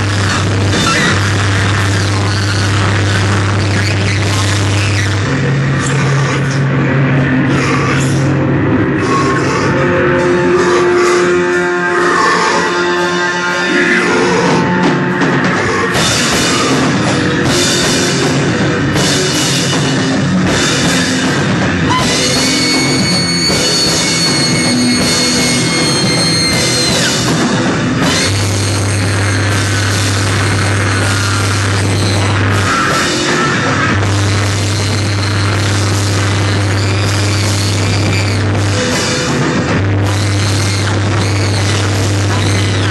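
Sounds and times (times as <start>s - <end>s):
low steady drone: 0.0s - 37.1s
drum kit and cymbals pounding: 0.0s - 42.9s
noise rock band playing loud: 0.0s - 42.9s
saxophone: 9.6s - 19.1s
high piercing squeal: 21.9s - 39.2s, 40.0s - 42.9s.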